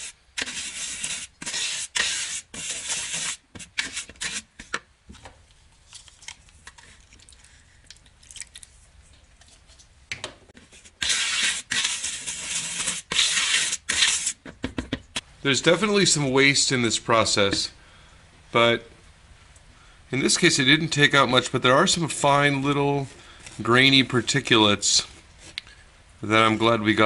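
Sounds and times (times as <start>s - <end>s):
brush scrubbing glaze through sieve: 0.0s - 4.7s, 10.6s - 14.4s.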